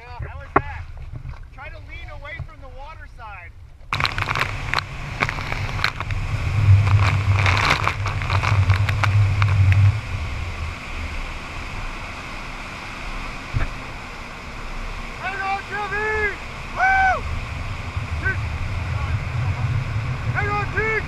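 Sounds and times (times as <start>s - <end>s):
churning wake water: 0.0s - 21.0s
watercraft engine: 0.0s - 21.0s
wind gusting on microphone: 3.8s - 21.0s.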